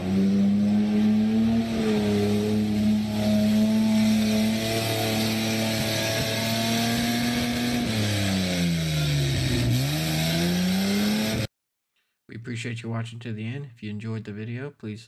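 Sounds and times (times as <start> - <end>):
wheels spinning in deep mud: 0.0 - 10.8
suv engine revving under load: 0.0 - 11.5.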